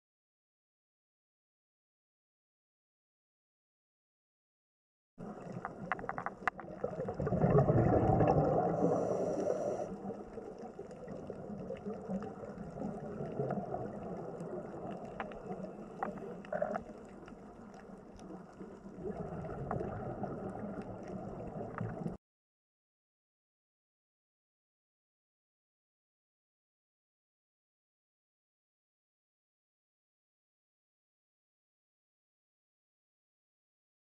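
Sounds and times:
faint clicks: 0:05.2 - 0:07.4, 0:08.8 - 0:22.2
underwater rushing water: 0:05.2 - 0:22.2.

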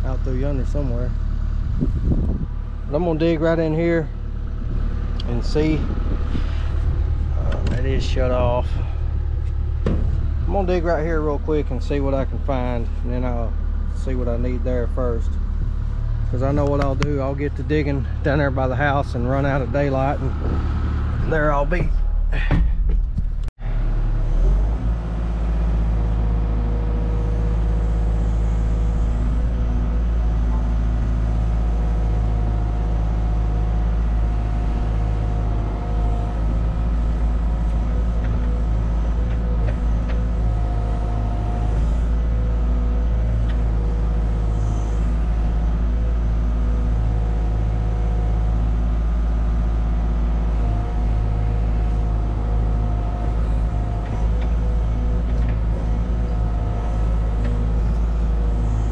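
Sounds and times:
diesel engine running under load: 0:00.0 - 0:58.9
hydraulic whine: 0:00.0 - 0:58.9.

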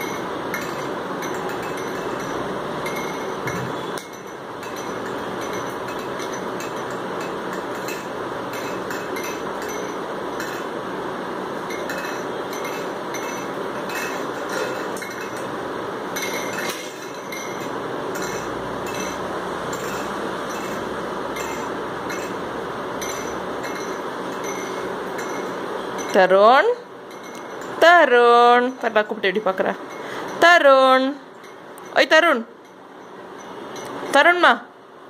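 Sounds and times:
light clinks and taps: 0:00.0 - 0:10.7, 0:11.7 - 0:15.6, 0:16.2 - 0:22.4, 0:23.0 - 0:26.2, 0:27.1 - 0:27.8, 0:31.3 - 0:34.2
steady background hiss: 0:00.0 - 0:35.0.

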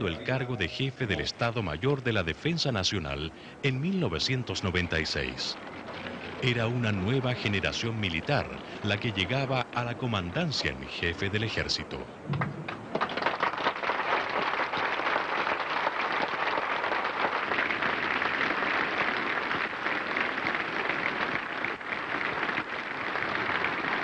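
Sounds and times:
crowd applauding: 0:12.9 - 0:24.0.

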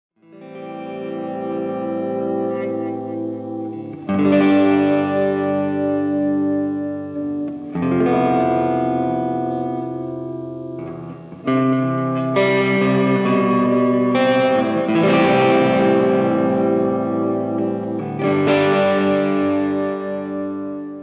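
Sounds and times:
guitar chords ringing: 0:00.2 - 0:21.0.

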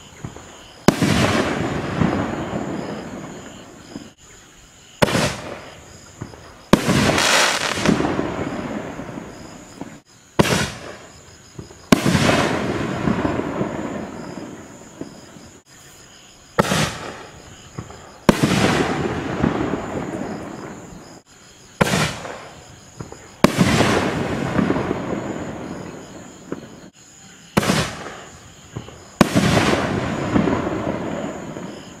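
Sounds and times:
mortar launch report: 0:05.0 - 0:11.1
firework shell burst: 0:06.8 - 0:08.2.

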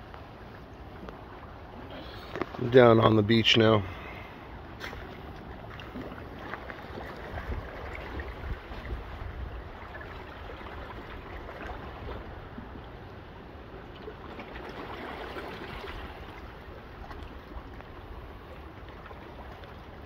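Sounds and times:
small waves lapping on rocks: 0:00.0 - 0:20.0
wind rumble on microphone: 0:04.8 - 0:13.8.

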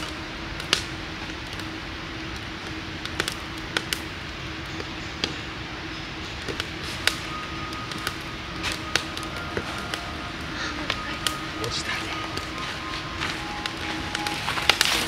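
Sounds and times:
campfire crackling and popping: 0:00.0 - 0:15.0
fire hissing: 0:00.0 - 0:15.0.

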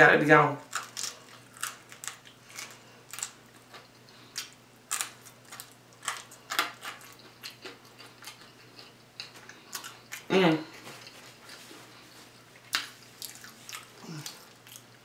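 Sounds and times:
crunching fried fish: 0:00.6 - 0:10.3.

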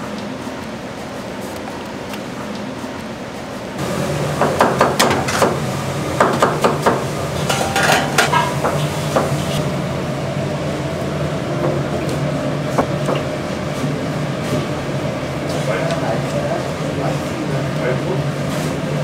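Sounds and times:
steady low hum: 0:00.0 - 0:19.0
metal cookware clanking: 0:07.4 - 0:09.6.

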